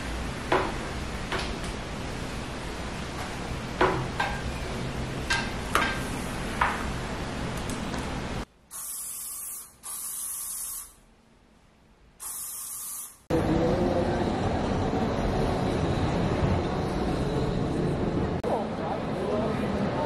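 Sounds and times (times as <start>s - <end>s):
aerosol spray hissing: 8.7s - 11.0s, 12.2s - 13.3s
city street noise: 13.3s - 20.0s.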